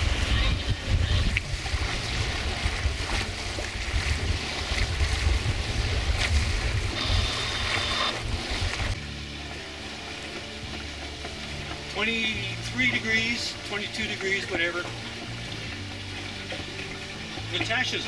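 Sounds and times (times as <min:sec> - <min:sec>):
wind buffeting microphone: 0:00.0 - 0:09.0
water washing along hull: 0:00.0 - 0:18.0.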